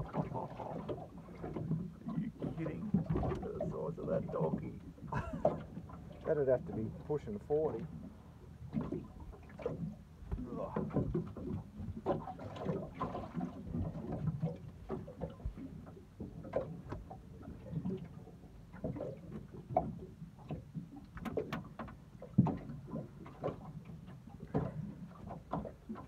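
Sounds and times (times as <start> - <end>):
knocks and clunks against boat hull: 0.0 - 26.0.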